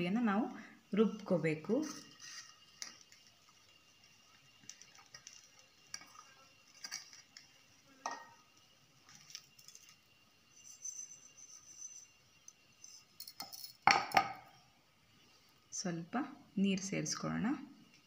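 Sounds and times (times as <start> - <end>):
steel kitchenware clinks: 13.2 - 14.2.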